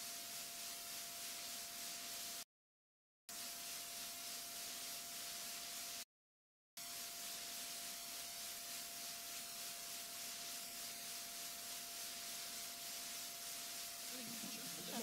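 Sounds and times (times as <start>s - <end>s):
steady hiss: 0.0s - 2.4s, 3.3s - 6.0s, 6.8s - 15.0s
mid-pitched whine: 6.8s - 15.0s.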